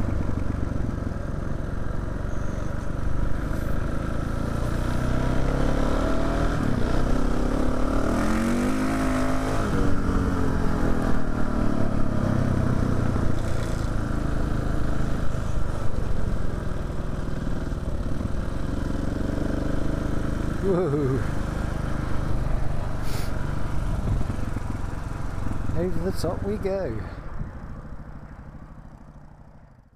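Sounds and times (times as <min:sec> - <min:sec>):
motorcycle engine revving: 0:00.0 - 0:26.9.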